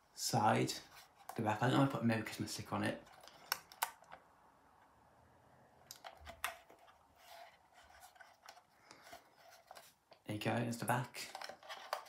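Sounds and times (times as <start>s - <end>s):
handling clicks and knocks: 11.2s - 12.0s.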